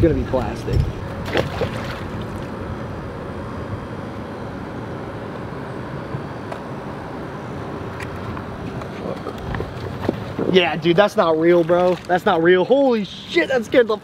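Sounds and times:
outdoor rumble and hiss: 0:00.0 - 0:14.0
object splashing into water: 0:01.2 - 0:02.5.

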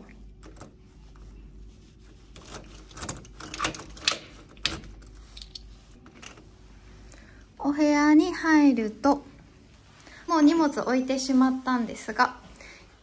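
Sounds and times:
doorknob turning: 0:02.4 - 0:05.0
key clicking in metal lock: 0:02.4 - 0:05.6.

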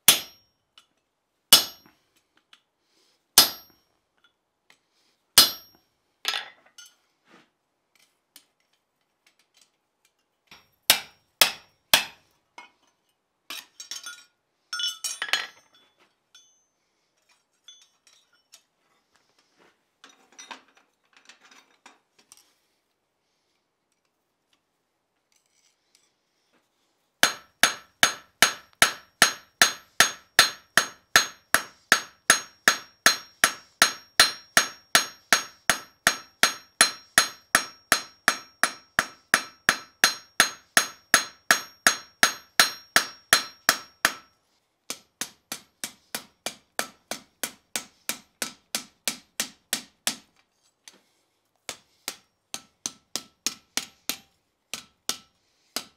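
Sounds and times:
hammer striking steel on anvil: 0:00.0 - 0:00.5, 0:01.5 - 0:02.0, 0:03.4 - 0:03.8, 0:05.4 - 0:05.8, 0:10.5 - 0:12.2, 0:27.2 - 0:44.3, 0:44.9 - 0:50.3, 0:51.7 - 0:55.9
tool clinks: 0:13.8 - 0:16.8, 0:17.6 - 0:18.6.

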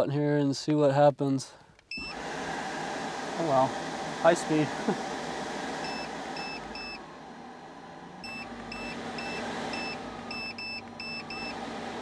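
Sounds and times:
air conditioner short high beeps: 0:01.9 - 0:02.2, 0:05.8 - 0:07.0, 0:08.2 - 0:11.6
blower fan running: 0:01.9 - 0:12.0.

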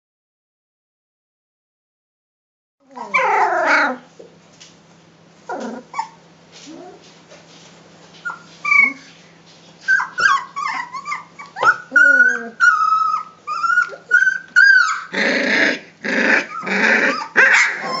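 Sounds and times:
puppy wavering whine: 0:02.8 - 0:04.1, 0:05.4 - 0:07.0, 0:08.2 - 0:09.2, 0:09.8 - 0:18.0
puppies whimpering and yipping: 0:02.9 - 0:04.0, 0:05.4 - 0:07.0, 0:08.2 - 0:18.0.

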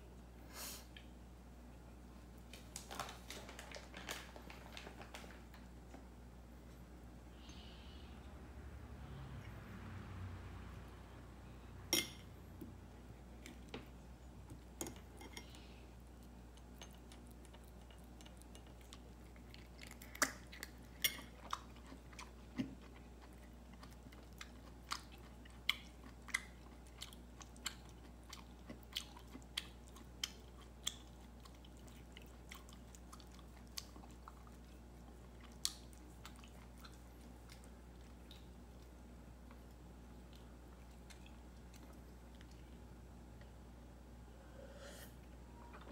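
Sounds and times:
cat chewing crunchy food: 0:14.6 - 0:43.6.

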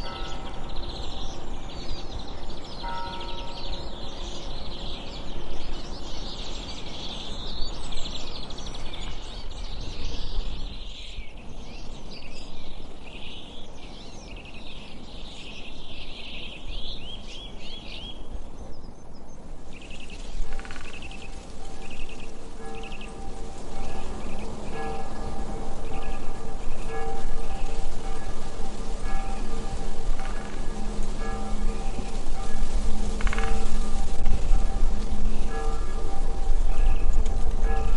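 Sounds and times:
background hiss: 0:00.0 - 0:37.9
songbirds chirping and trilling: 0:00.0 - 0:37.9
faint music: 0:17.0 - 0:37.9.

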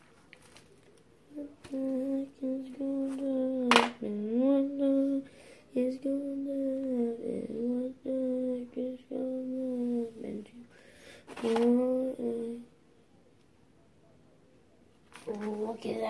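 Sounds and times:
child humming: 0:01.3 - 0:10.6, 0:11.4 - 0:12.7.

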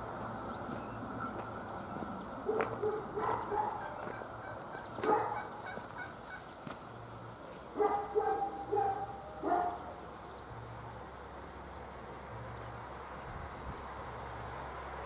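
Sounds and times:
fowl calling: 0:02.4 - 0:06.5.

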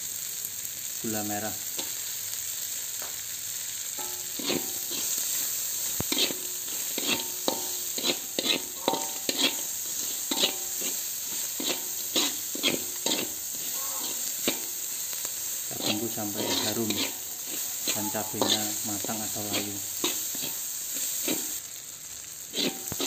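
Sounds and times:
food sizzling in hot oil: 0:00.0 - 0:23.0
metal spatula scraping wok: 0:01.7 - 0:02.1, 0:04.0 - 0:21.6, 0:22.4 - 0:23.0.

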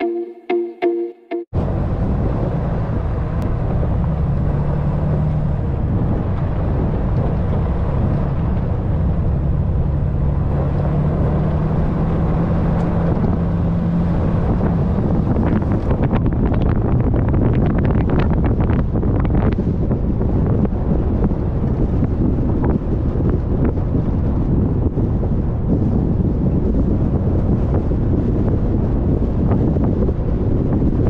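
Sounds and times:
pickup truck engine droning: 0:01.6 - 0:31.0.

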